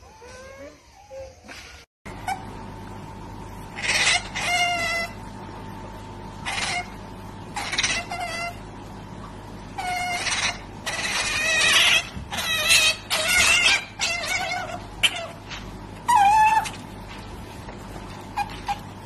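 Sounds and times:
otter squeaking: 9.8 - 16.8.

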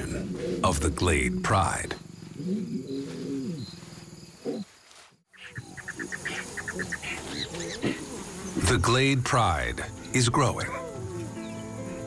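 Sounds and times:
lion growl: 0.0 - 3.7
faint insects and birds: 0.0 - 12.0.

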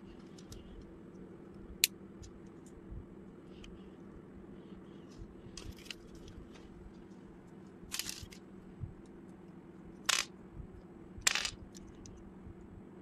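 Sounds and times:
faint low hum: 0.0 - 13.0
plastic bricks clicking together: 10.1 - 10.3, 11.2 - 12.1.

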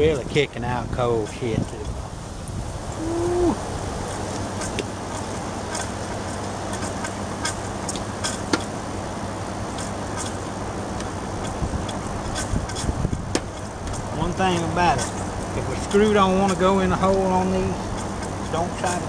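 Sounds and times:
air conditioner humming: 0.0 - 19.0.

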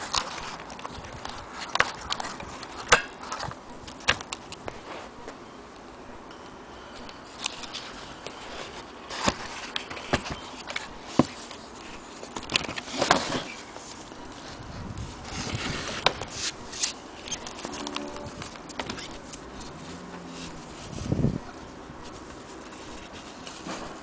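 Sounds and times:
rustling: 7.0 - 24.0.

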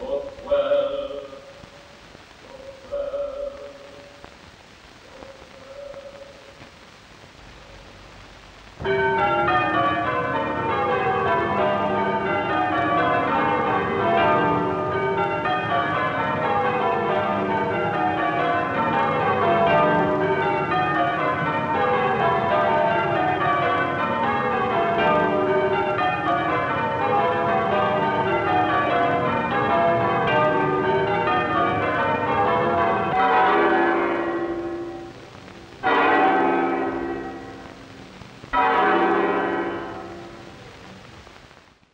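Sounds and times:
church bells ringing: 8.8 - 35.2, 35.8 - 37.9, 38.5 - 40.6.

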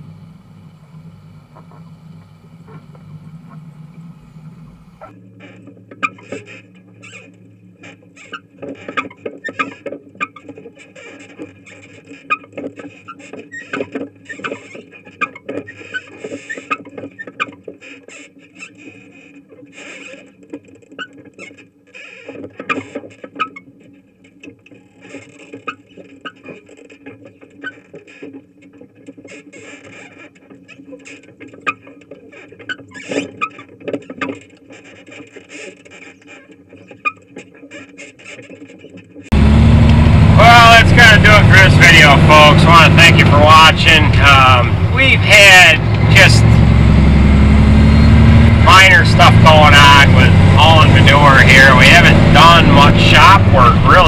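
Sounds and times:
steady low rumble: 0.0 - 5.1, 39.3 - 54.0.

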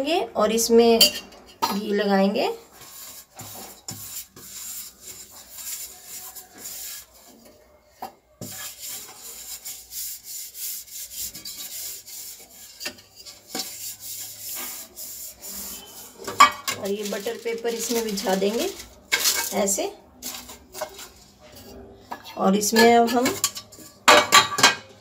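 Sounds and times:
fingers rubbing metal tin: 2.7 - 7.5, 8.4 - 21.3.

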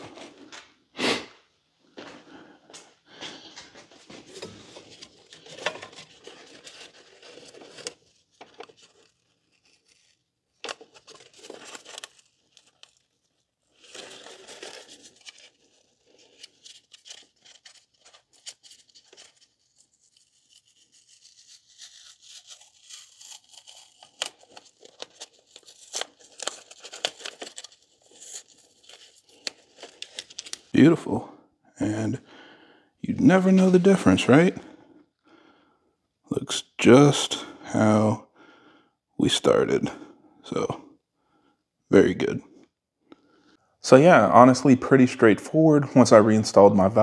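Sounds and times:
paper towels rustling and crumpling: 3.3 - 30.8
tape peeling off: 4.3 - 30.7.

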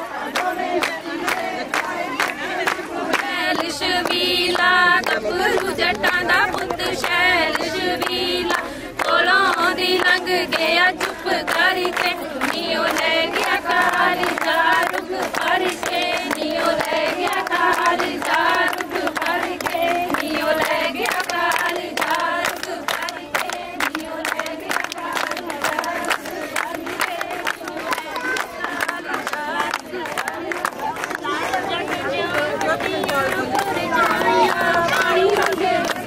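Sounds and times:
women singing folk song: 0.0 - 36.0
sharp hand claps: 0.2 - 36.0.

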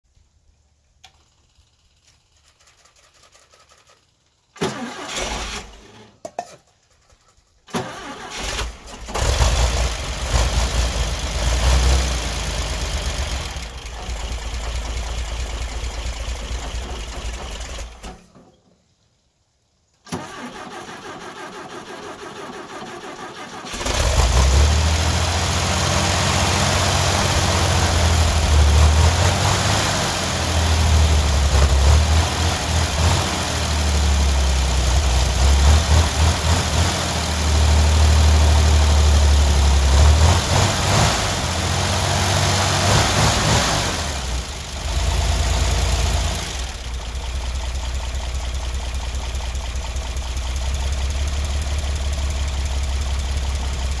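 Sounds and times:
engine running unevenly then idling: 12.2 - 18.0, 44.0 - 54.0.

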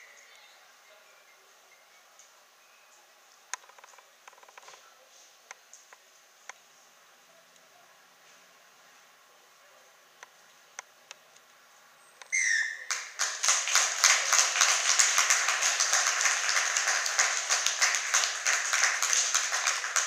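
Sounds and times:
crowd clapping: 12.8 - 20.0.

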